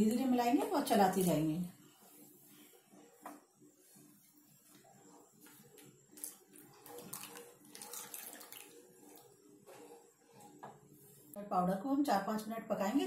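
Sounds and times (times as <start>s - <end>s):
liquid pouring in a thin stream: 6.2s - 9.3s
spatula scraping a pan: 8.7s - 11.4s.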